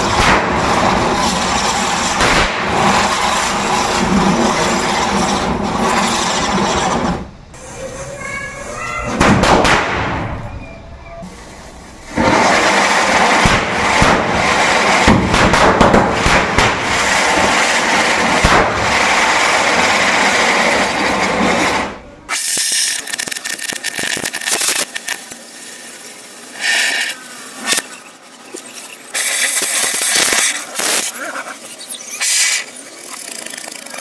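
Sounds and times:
pyrotechnics hissing and crackling: 0.0s - 10.5s, 11.2s - 34.0s.

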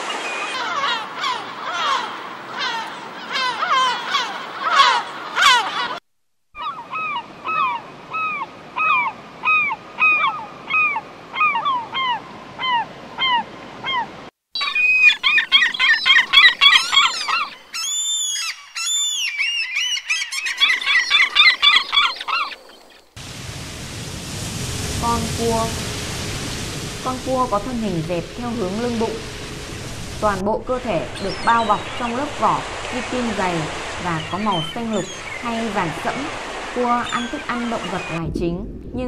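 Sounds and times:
gulls calling: 0.0s - 6.0s, 6.6s - 23.2s, 24.8s - 38.5s
steady hiss: 22.8s - 38.2s
swans honking: 25.7s - 38.2s.

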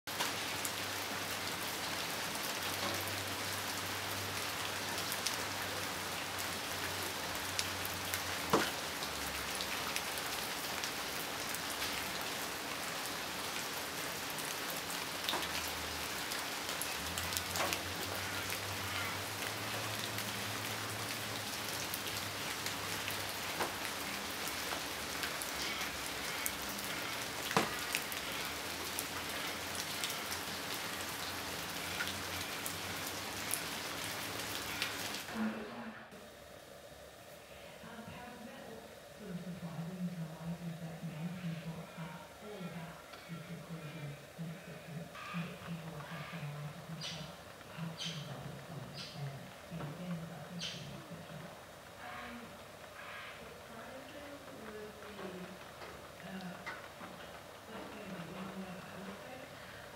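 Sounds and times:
steady rain hiss: 0.1s - 59.9s.

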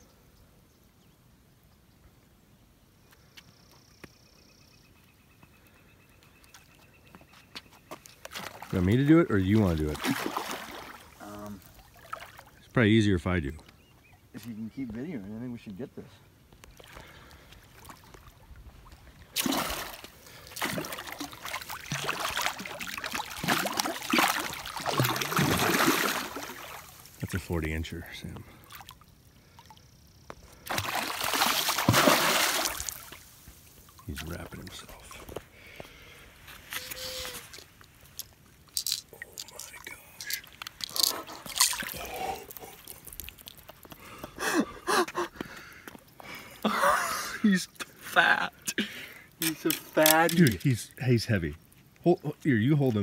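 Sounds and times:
fish splashing in water: 9.9s - 12.5s, 19.3s - 27.1s, 30.7s - 34.0s, 41.4s - 43.9s.

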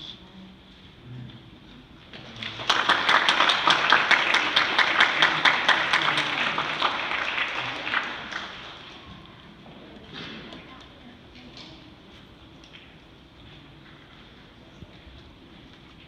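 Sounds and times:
crowd applauding: 2.2s - 9.2s.

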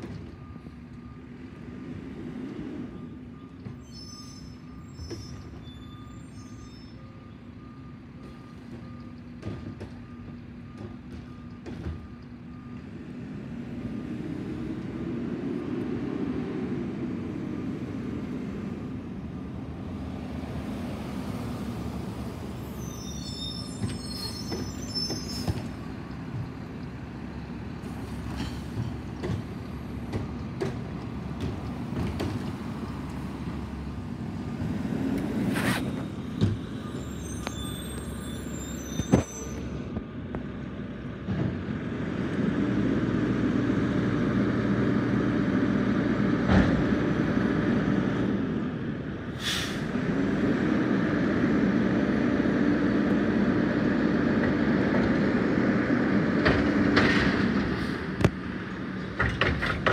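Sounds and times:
garbage truck engine: 0.0s - 59.9s
brake squeals: 2.8s - 13.1s, 21.5s - 40.3s.

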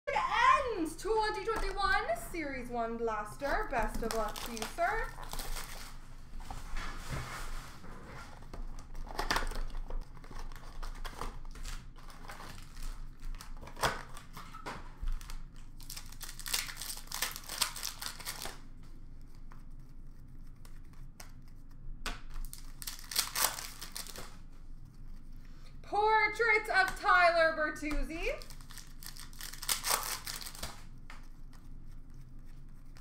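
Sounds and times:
foil wrappers tearing and crinkling: 3.4s - 6.0s, 8.8s - 18.7s, 22.2s - 24.5s, 28.3s - 32.0s.

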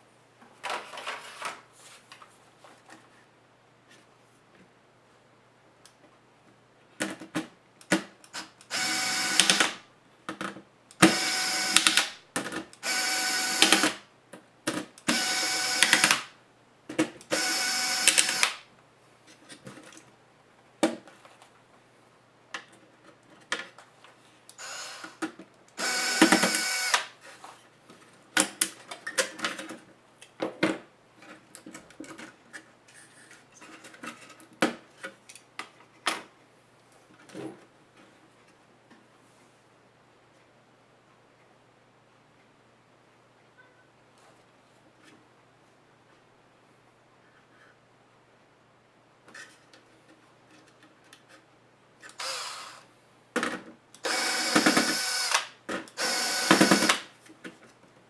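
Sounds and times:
electric screwdriver whirring: 8.7s - 9.8s, 11.0s - 12.1s, 12.8s - 14.0s, 15.1s - 16.3s, 17.4s - 18.6s, 24.6s - 25.2s, 25.8s - 27.1s, 52.1s - 52.8s, 54.0s - 57.1s.

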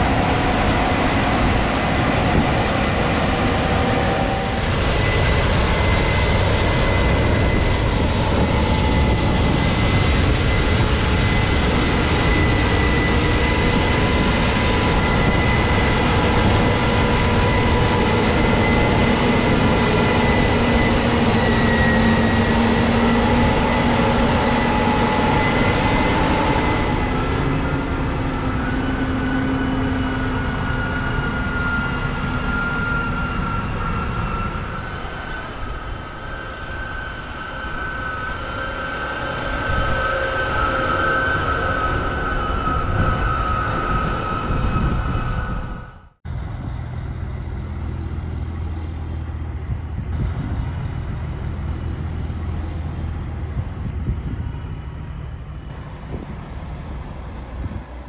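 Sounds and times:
steady machine whines: 0.0s - 58.0s
combine harvester machine noise: 46.3s - 58.0s.

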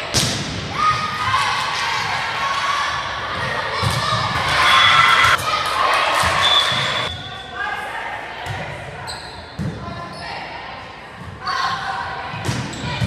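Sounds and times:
people shouting and cheering: 0.7s - 8.4s.

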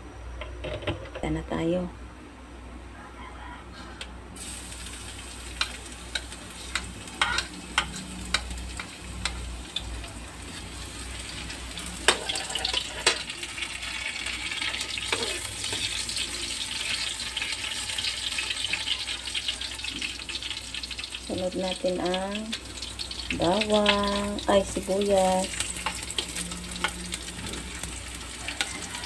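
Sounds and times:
garlic sizzling in hot oil: 4.4s - 29.0s
metal spoon scraping a wok: 5.6s - 9.4s, 10.5s - 13.3s, 14.6s - 19.1s, 25.7s - 29.0s.

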